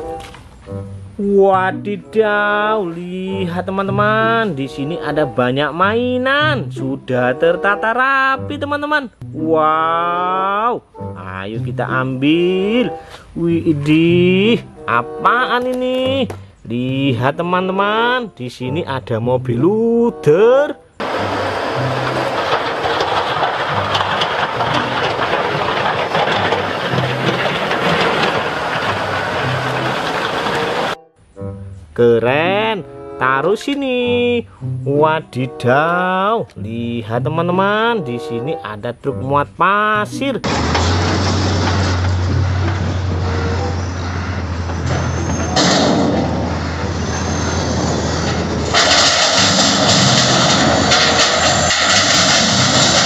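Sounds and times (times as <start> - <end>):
rock dropping into steel truck bed: 21.0 - 30.7, 40.4 - 43.9
diesel engine running under load: 21.0 - 31.0, 40.4 - 53.0
plow blade scraping snow: 21.0 - 31.0, 40.4 - 53.0.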